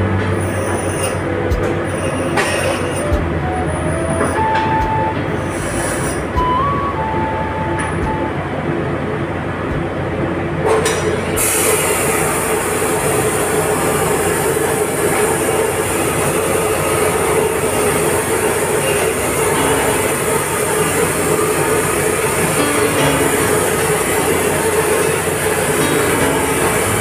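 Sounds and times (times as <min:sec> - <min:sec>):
metal grinding hiss: 0:05.4 - 0:06.4, 0:11.4 - 0:27.0
bench grinder wheel whine: 0:10.9 - 0:27.0.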